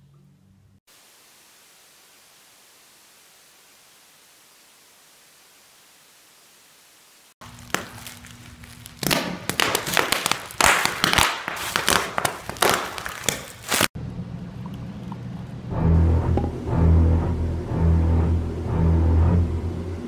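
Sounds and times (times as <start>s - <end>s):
bubble wrap crinkling: 7.4s - 14.0s
bubble wrap popping: 7.4s - 14.0s.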